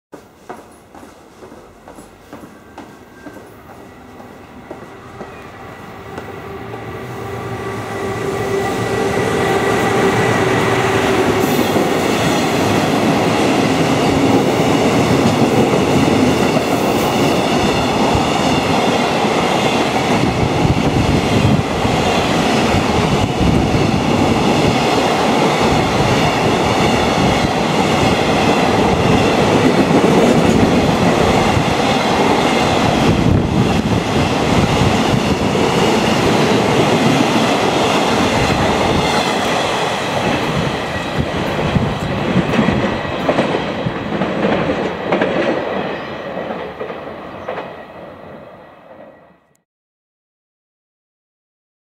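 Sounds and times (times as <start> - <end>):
clickety-clack over rail joints: 0.1 - 5.4, 41.2 - 47.9
train wheels rumbling on rails: 0.1 - 48.6.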